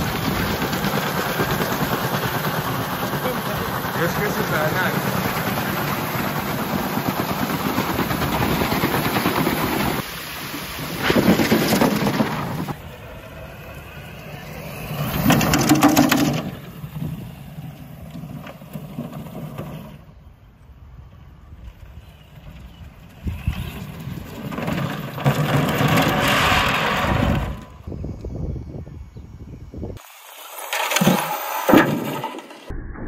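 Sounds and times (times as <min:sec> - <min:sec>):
plastic wheels scraping on pavement: 0:10.8 - 0:12.8, 0:14.5 - 0:20.2, 0:21.8 - 0:27.9, 0:30.0 - 0:32.7
rc car motor whirring: 0:10.9 - 0:20.2, 0:21.7 - 0:32.7.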